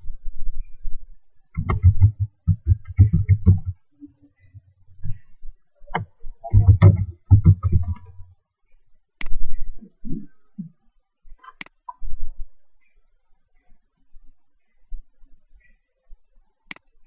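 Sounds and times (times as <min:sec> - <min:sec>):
laptop keyboard typing: 0:01.6 - 0:03.7, 0:06.5 - 0:08.0.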